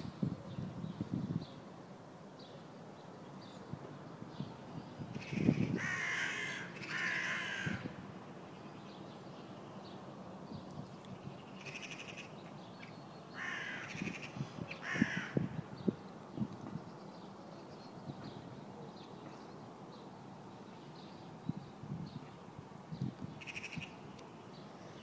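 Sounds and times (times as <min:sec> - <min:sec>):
crows cawing: 0:05.2 - 0:08.0, 0:13.4 - 0:15.5.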